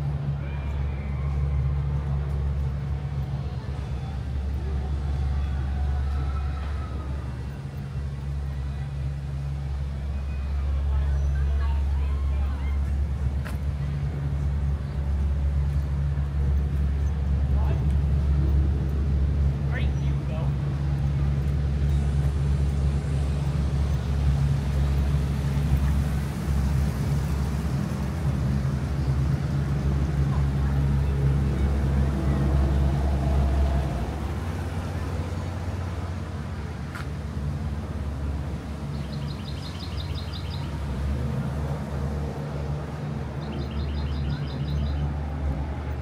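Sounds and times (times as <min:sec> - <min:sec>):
raft engine humming: 0:00.0 - 0:46.0.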